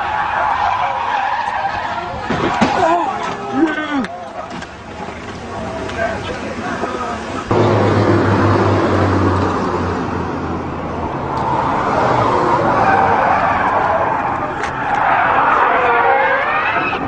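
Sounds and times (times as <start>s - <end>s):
tyres skidding: 0.0s - 17.0s
car engine running hard: 4.7s - 17.0s.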